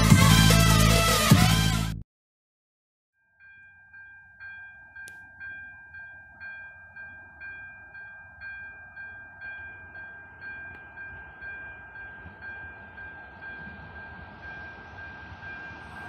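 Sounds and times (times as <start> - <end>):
level crossing bell ringing: 3.2 - 16.0
train rumbling: 6.4 - 16.0.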